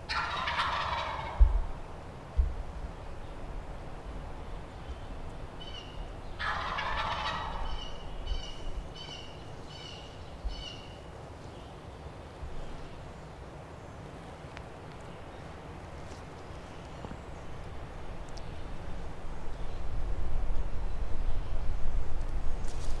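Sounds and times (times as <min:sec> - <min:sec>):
turkey gobbling: 0:00.1 - 0:01.6, 0:05.6 - 0:10.9.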